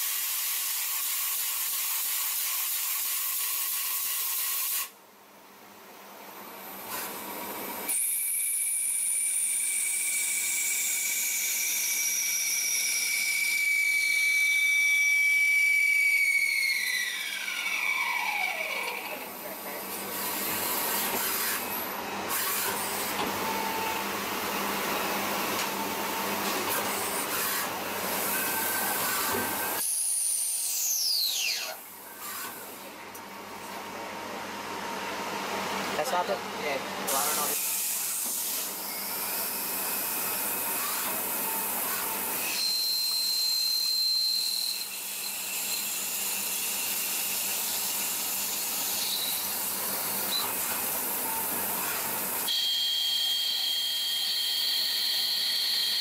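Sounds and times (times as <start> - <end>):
lathe spindle whine: 40.4 - 56.0.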